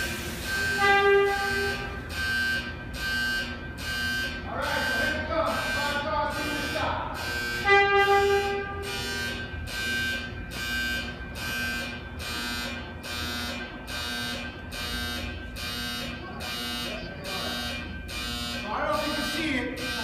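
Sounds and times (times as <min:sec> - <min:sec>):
electronic warning alarm beeping: 0:00.0 - 0:20.0
loud horn-like tone: 0:00.4 - 0:04.0, 0:04.6 - 0:11.8.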